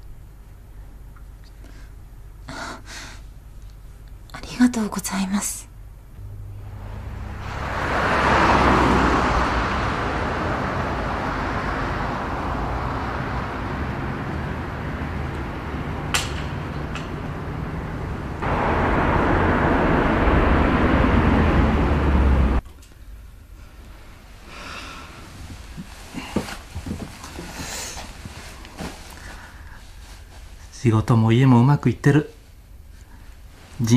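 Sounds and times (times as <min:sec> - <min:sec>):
low car engine hum: 0:05.9 - 0:22.6
road traffic rush: 0:06.2 - 0:22.6.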